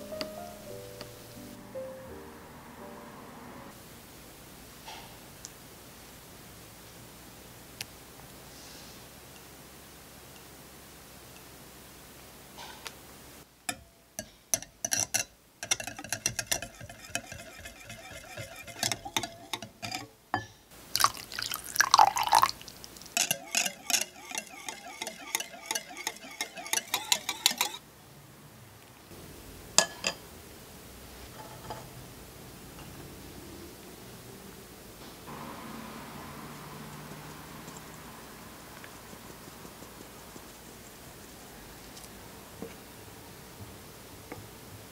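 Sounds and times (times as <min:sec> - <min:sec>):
whisk clinking against glass bowl: 0:13.7 - 0:20.1, 0:21.0 - 0:22.6, 0:23.2 - 0:27.8
liquid swishing: 0:15.7 - 0:20.0, 0:20.9 - 0:27.8.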